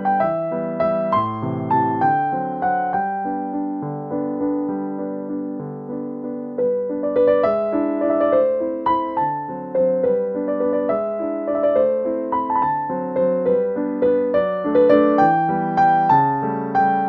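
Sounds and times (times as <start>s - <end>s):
piano melody: 0.0s - 17.0s.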